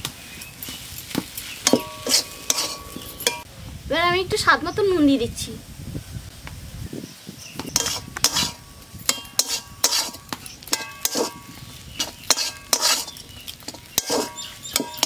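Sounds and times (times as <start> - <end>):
metal spatula scraping pan: 1.6 - 3.5, 7.7 - 15.0
metallic pan ring: 1.6 - 3.5, 7.8 - 13.2, 13.9 - 15.0.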